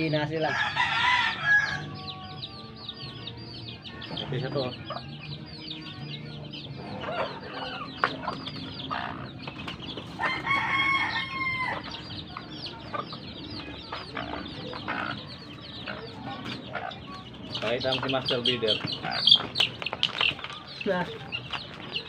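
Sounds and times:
chicks peeping: 0.0 - 22.0
rooster crowing: 0.5 - 2.1, 10.2 - 11.9.

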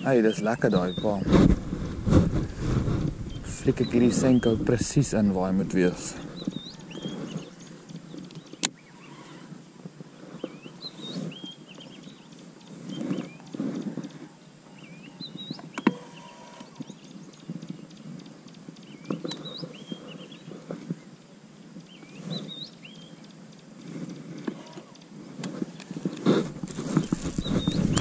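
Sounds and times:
bird chirping: 0.0 - 9.5, 10.4 - 21.1, 21.8 - 28.0
low muffled bumps: 0.8 - 7.0, 26.2 - 28.0.

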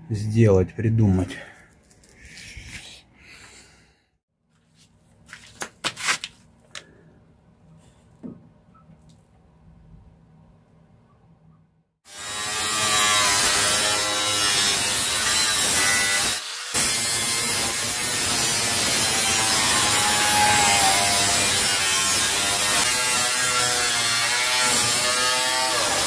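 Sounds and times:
angle grinder cutting sheet steel: 12.1 - 26.0.

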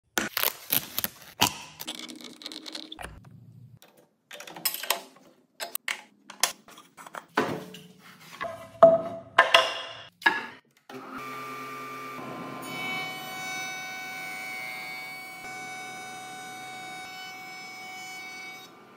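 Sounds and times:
router table motor whining: 10.9 - 17.1.

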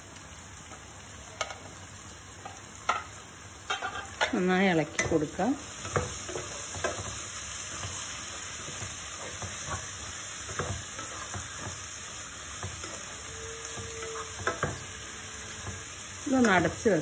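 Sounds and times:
vegetables sizzling in a pot: 0.0 - 17.0
wooden spatula knocking on pan: 12.5 - 13.0, 13.6 - 14.9.

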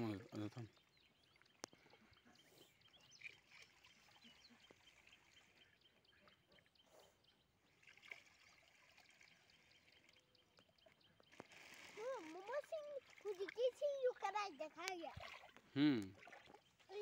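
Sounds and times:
water trickling into a bag: 7.7 - 10.6, 11.3 - 16.9.

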